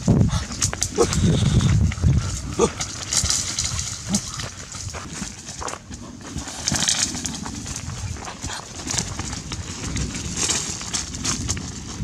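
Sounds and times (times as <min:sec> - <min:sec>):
leaves and twigs crackling underfoot: 0:00.0 - 0:12.0
bare footsteps on ground: 0:02.8 - 0:12.0.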